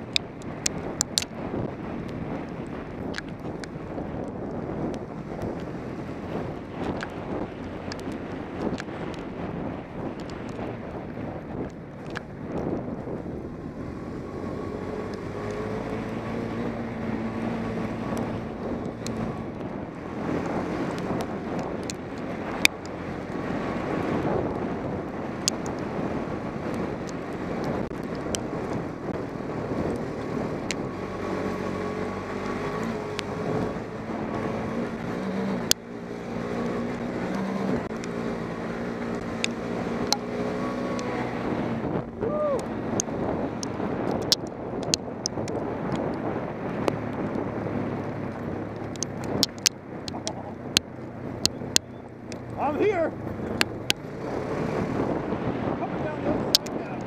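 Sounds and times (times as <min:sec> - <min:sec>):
wind noise on microphone: 0:00.0 - 0:57.0
quad engine revving: 0:13.6 - 0:24.6, 0:29.5 - 0:44.4, 0:51.6 - 0:57.0.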